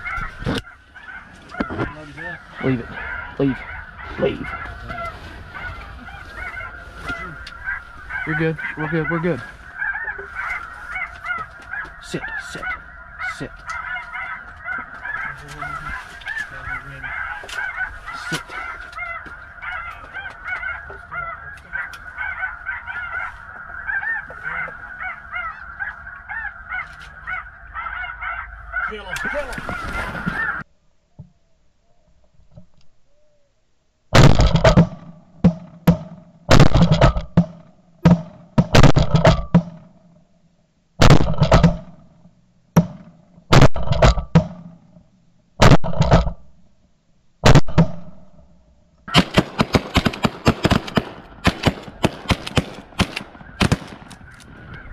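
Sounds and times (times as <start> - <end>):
snow geese calling: 0.0 - 30.7, 49.1 - 54.9
loud shotgun shots: 34.2 - 39.9, 41.0 - 42.0, 42.8 - 44.7, 45.6 - 46.4, 47.4 - 48.2, 49.1 - 54.3.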